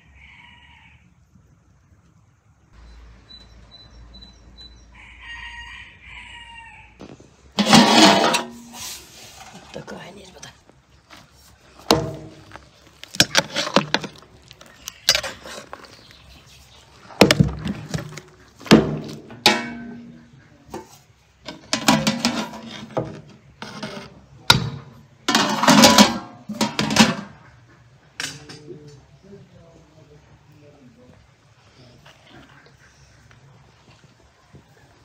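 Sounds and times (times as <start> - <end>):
metal skimmer scraping cooking pot: 7.6 - 10.5, 11.5 - 27.6.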